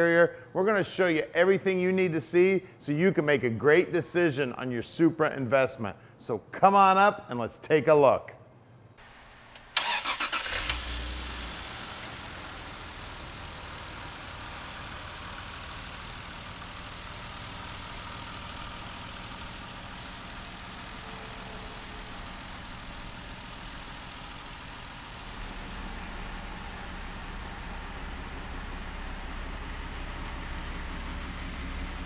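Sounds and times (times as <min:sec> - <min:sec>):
car engine idling: 0:09.0 - 0:32.0.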